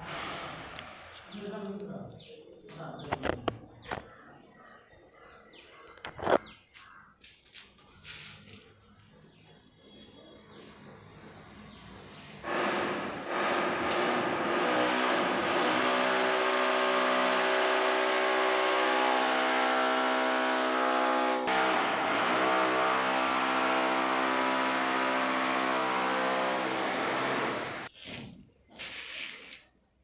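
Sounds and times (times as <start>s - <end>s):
engine humming steadily: 12.4s - 27.9s.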